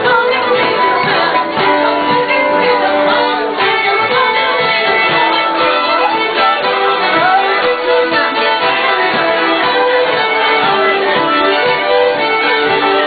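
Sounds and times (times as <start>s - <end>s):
live band playing dance tune: 0.0s - 13.0s.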